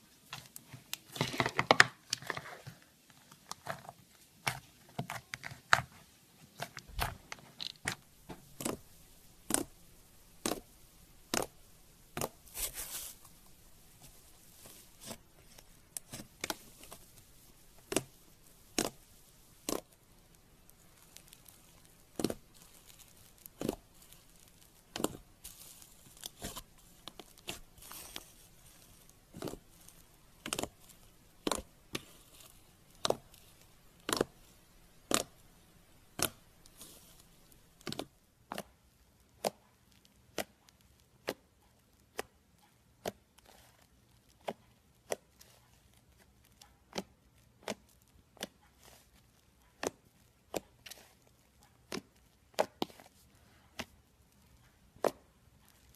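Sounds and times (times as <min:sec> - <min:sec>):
slime crackling: 0:06.6 - 0:42.2, 0:43.0 - 0:55.9
slime popping: 0:06.9 - 0:38.7.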